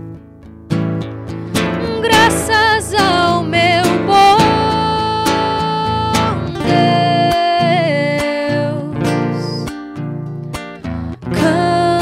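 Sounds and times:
classical guitar: 0:00.0 - 0:12.0
woman singing with vibrato: 0:01.7 - 0:09.7, 0:11.3 - 0:12.0.

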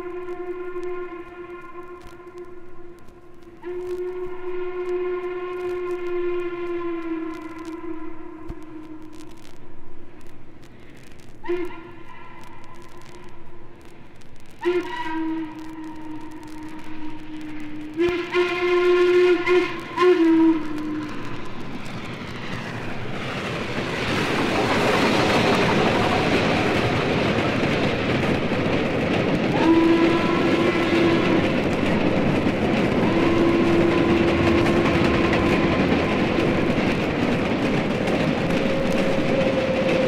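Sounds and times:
steam locomotive whistle: 0:00.0 - 0:09.4, 0:11.4 - 0:13.4, 0:14.6 - 0:22.6, 0:29.4 - 0:37.0, 0:38.5 - 0:40.0
train rushing by: 0:14.6 - 0:40.0.

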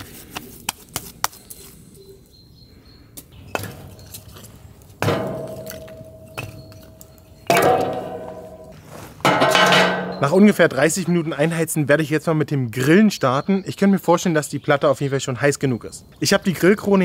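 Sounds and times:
wood knocking on steel barrel: 0:05.0 - 0:06.8, 0:07.5 - 0:10.3
steel ringing: 0:05.0 - 0:10.6.

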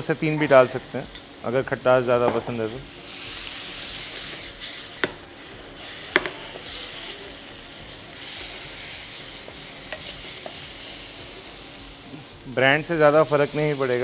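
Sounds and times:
vegetables sizzling in frying pan: 0:00.0 - 0:14.0
spatula knocking against pan: 0:06.1 - 0:06.4.

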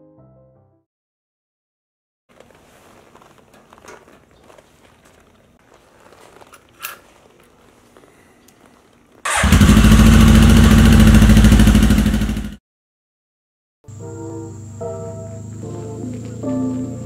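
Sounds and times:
motorcycle engine running: 0:09.3 - 0:12.6.

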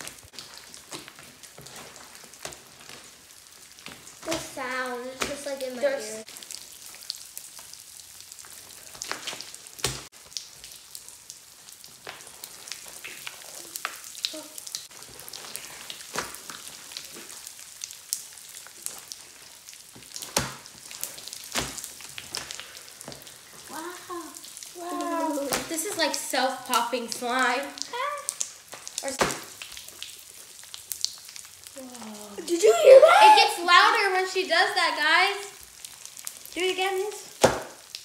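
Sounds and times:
popping candy crackling: 0:00.0 - 0:38.0
slime being squished: 0:11.6 - 0:32.4.

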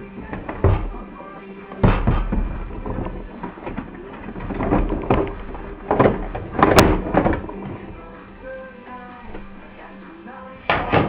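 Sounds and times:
plastic creaks and scrapes: 0:00.0 - 0:08.5.

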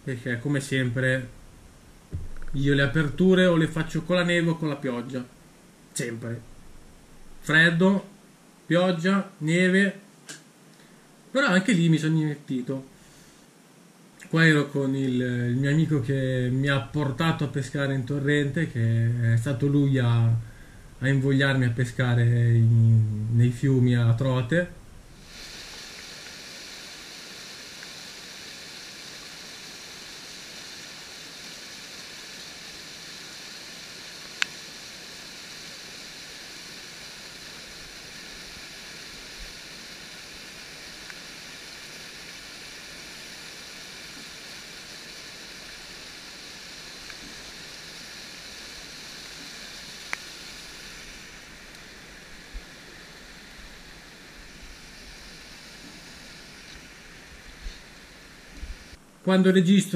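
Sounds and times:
sharp clicks: 0:02.3 - 0:02.7.

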